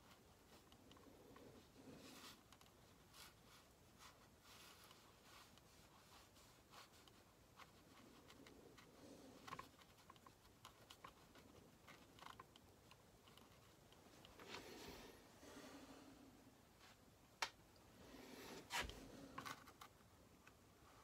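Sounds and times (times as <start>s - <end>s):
brush scratching on paper: 1.4s - 12.3s.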